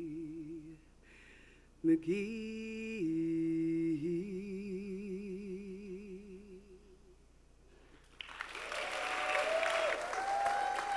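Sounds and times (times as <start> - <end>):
woman singing with vibrato: 0.0 - 0.9, 1.8 - 7.1
audience applause and cheering: 8.1 - 10.9.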